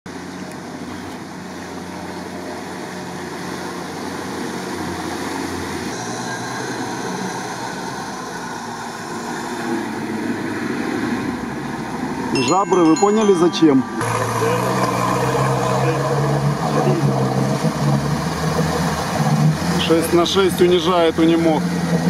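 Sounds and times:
water washing around vehicles: 0.1s - 12.4s, 14.0s - 22.0s
off-road engines under load: 0.1s - 22.0s.

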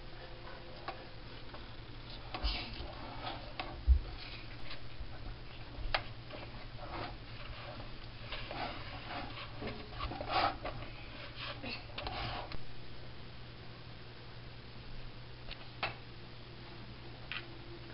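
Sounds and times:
wooden spoon stirring in metal pot: 0.0s - 12.6s.

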